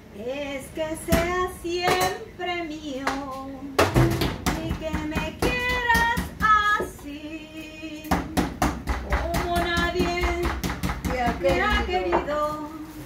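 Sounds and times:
woman singing love song: 0:00.1 - 0:13.0
meat mallet pounding on board: 0:03.8 - 0:06.9, 0:08.1 - 0:12.2.

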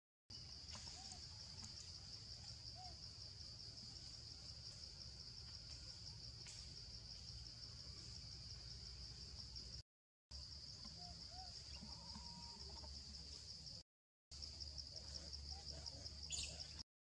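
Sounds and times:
faint chirps: 0:10.5 - 0:13.8, 0:14.4 - 0:16.8.

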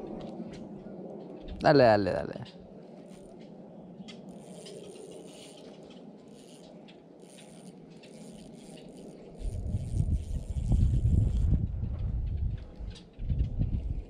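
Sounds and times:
fishing reel clicking: 0:04.1 - 0:11.6
low rumble over microphone: 0:09.2 - 0:14.0.

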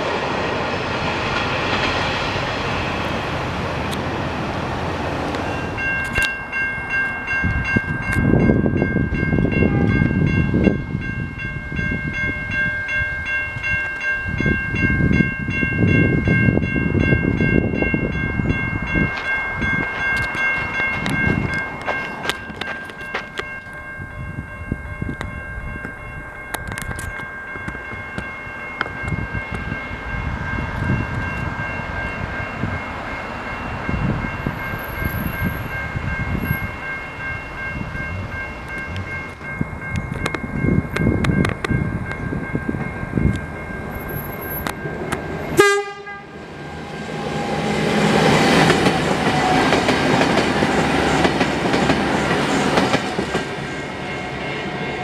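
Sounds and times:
level crossing bells ringing: 0:05.4 - 0:46.6.

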